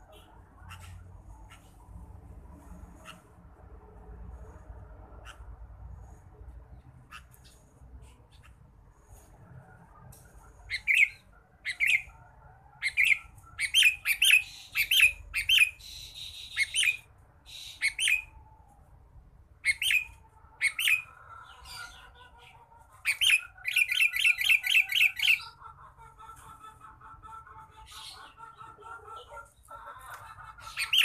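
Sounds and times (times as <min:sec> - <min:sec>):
bird chirping: 0:10.4 - 0:12.2, 0:12.8 - 0:18.3, 0:19.6 - 0:25.8, 0:30.6 - 0:31.0.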